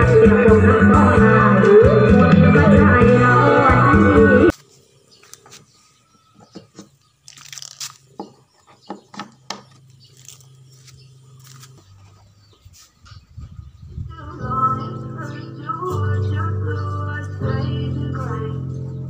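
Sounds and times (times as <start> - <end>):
music: 0.0 - 4.5, 14.1 - 19.0.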